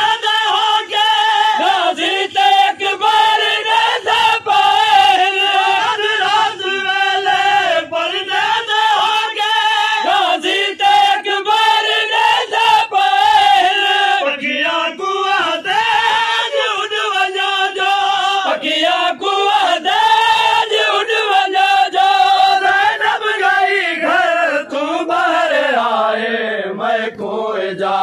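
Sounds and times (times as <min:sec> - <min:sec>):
lead reciter on microphone: 0:00.0 - 0:28.0
men chanting a lament: 0:00.0 - 0:28.0.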